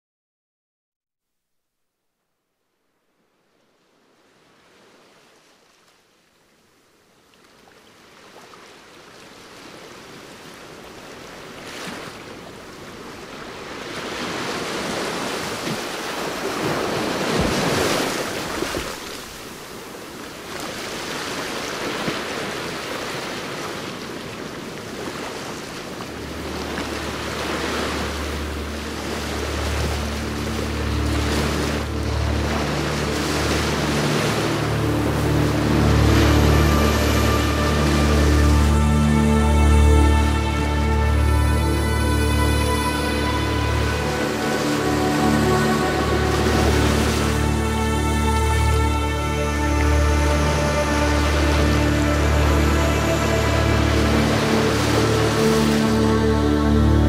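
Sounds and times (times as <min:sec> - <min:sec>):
rushing water like surf: 0:03.6 - 0:57.0
low musical drone: 0:26.0 - 0:57.0.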